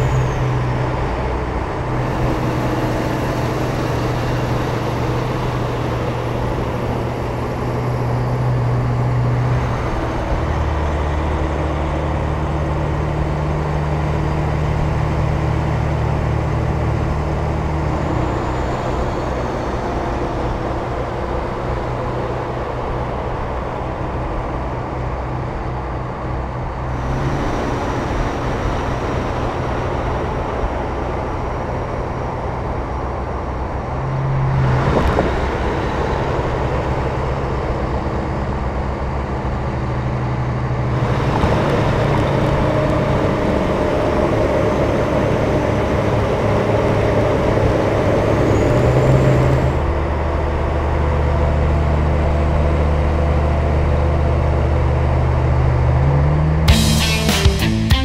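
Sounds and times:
trucks driving past: 0.0s - 58.0s
tyre and road noise: 0.0s - 58.0s.

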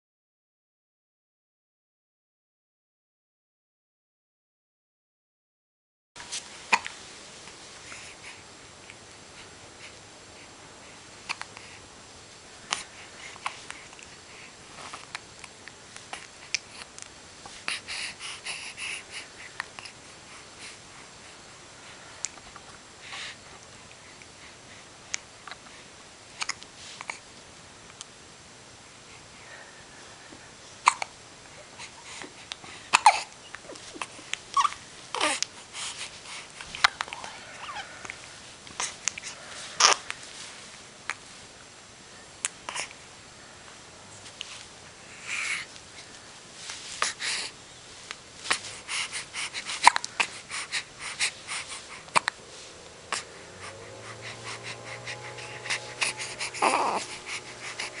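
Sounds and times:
baby breathing: 12.7s - 15.1s, 17.5s - 22.4s, 23.0s - 24.9s, 31.6s - 40.7s, 44.5s - 47.6s, 48.4s - 58.0s
baby hiccuping: 30.8s - 31.1s, 32.9s - 33.3s, 39.8s - 40.0s, 49.8s - 50.3s.

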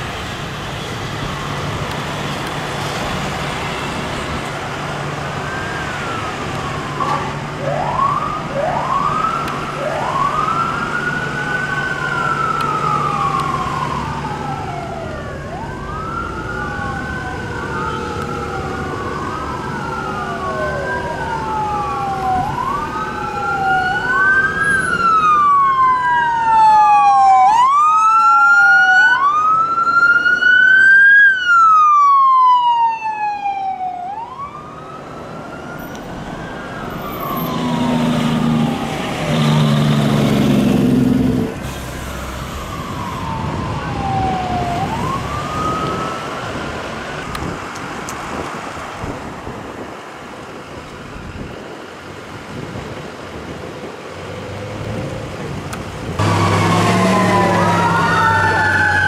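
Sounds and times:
fire truck sirens wailing: 0.0s - 59.0s.

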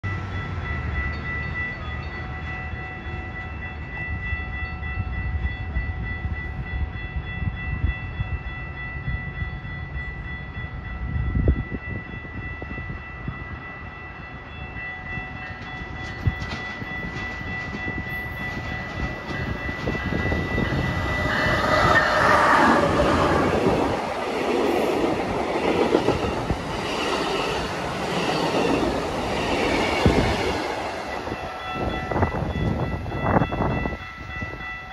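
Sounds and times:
diesel locomotive engine rumble: 0.0s - 34.9s
steady high-pitched tone: 17.7s - 34.8s.

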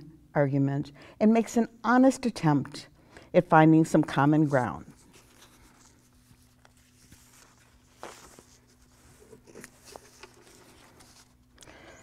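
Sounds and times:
paper sheets rustling: 4.4s - 11.5s.

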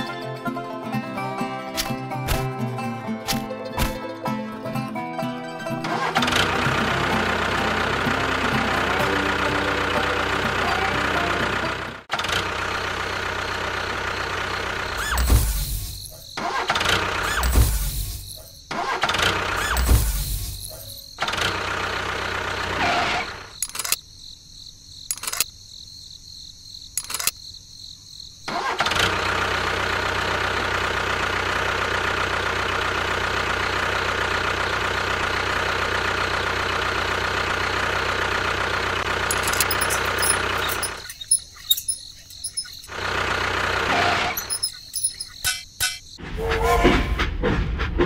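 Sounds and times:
engine running: 0.9s - 24.0s, 28.5s - 46.2s
sharp clicks: 23.6s - 24.0s, 25.1s - 25.5s, 27.0s - 27.4s, 39.3s - 42.9s.

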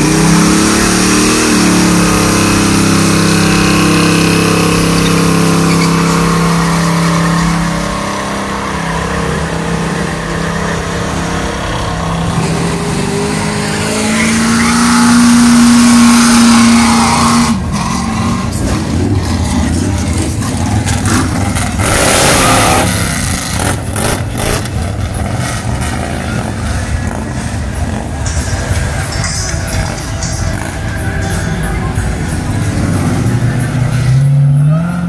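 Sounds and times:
car engine revving high: 0.0s - 35.0s
second car engine revving: 0.0s - 35.0s
tyres squealing: 3.2s - 7.8s, 13.7s - 15.3s.

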